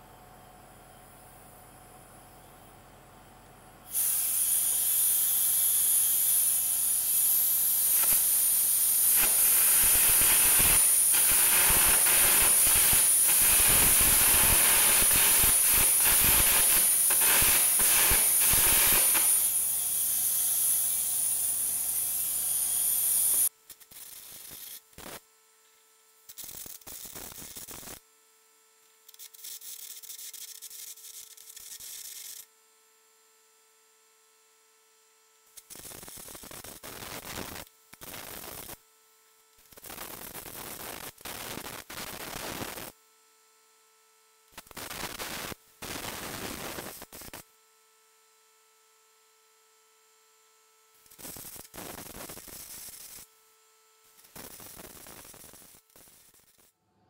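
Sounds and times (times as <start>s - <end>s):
compressed air hiss: 3.9s - 5.1s, 7.8s - 19.6s
carbon arc crackling: 7.5s - 19.6s, 26.4s - 28.0s, 54.2s - 56.7s.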